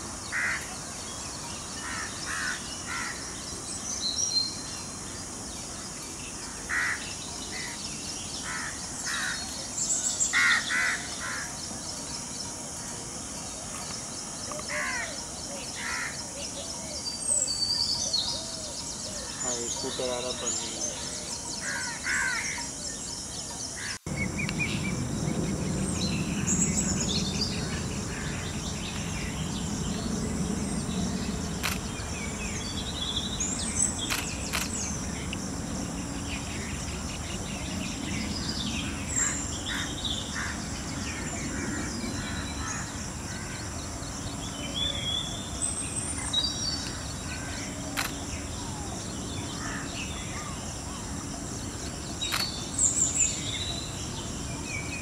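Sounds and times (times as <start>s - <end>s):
small birds chirping: 13.2s - 55.0s
steady high hum: 15.1s - 55.0s
low background rumble: 24.1s - 44.6s.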